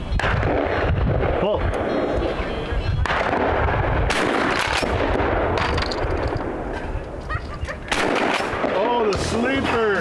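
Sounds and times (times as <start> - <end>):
steady low rumble: 0.1 - 10.0
shotgun shots: 0.2 - 2.1, 3.0 - 6.7, 7.9 - 9.4.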